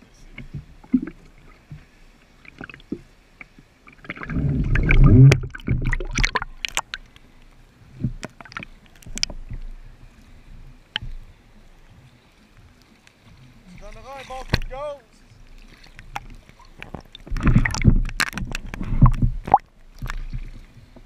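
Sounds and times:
water lapping and sloshing: 0.0 - 21.0
small splashes and drips: 0.3 - 9.8, 12.5 - 21.0
water gurgling surge: 3.8 - 7.2, 15.9 - 20.8.

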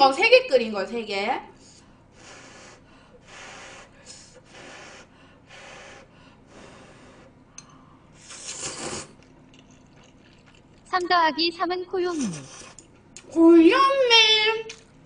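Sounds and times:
person slurping noodles: 8.2 - 10.6, 12.1 - 12.9.

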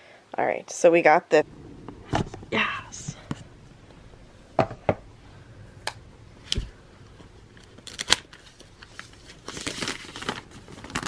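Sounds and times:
packaging wrap rustling: 6.4 - 11.0.

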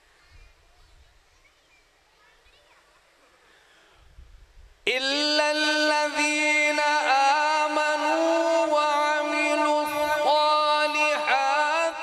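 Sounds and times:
man reciting in melodic chant: 4.8 - 12.0.

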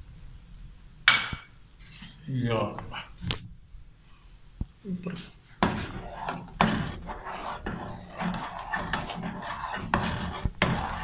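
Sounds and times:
hand rubbing glass bowl: 5.6 - 11.0
spoon scraping steel pan: 5.6 - 11.0.

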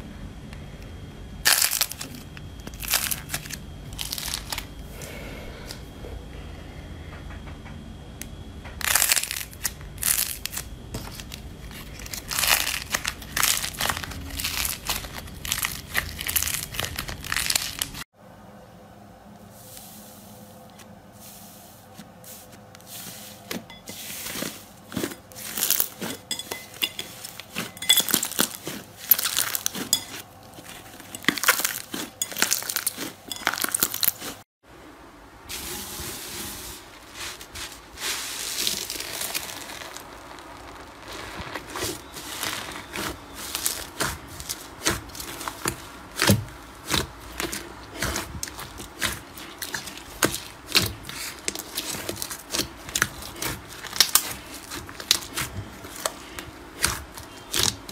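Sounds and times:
slime crackling and popping: 1.4 - 4.7, 8.8 - 18.0, 27.3 - 34.4, 38.5 - 57.9.

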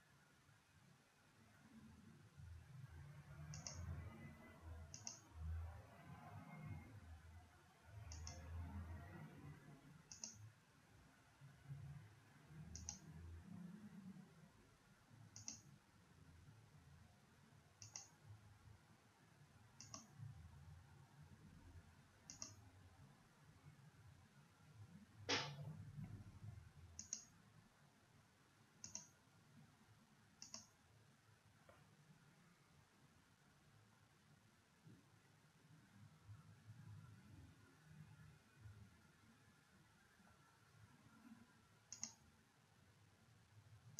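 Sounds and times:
faint low rumble: 0.6 - 42.5
computer mouse button clicking: 3.5 - 3.9, 4.9 - 5.3, 8.1 - 8.4, 10.1 - 10.4, 12.7 - 13.0, 15.4 - 15.7, 17.8 - 18.1, 19.8 - 20.1, 22.3 - 22.6, 27.0 - 27.3, 28.8 - 29.1, 30.4 - 30.7, 41.9 - 42.2.

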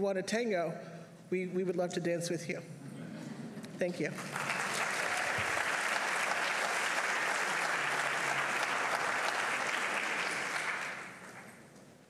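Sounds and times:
audience applauding: 4.1 - 11.8.

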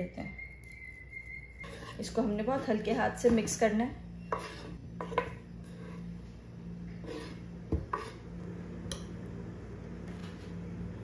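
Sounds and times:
steady low hum: 0.0 - 11.0
metal spoon knocking and scraping: 1.3 - 3.6, 4.2 - 6.1.

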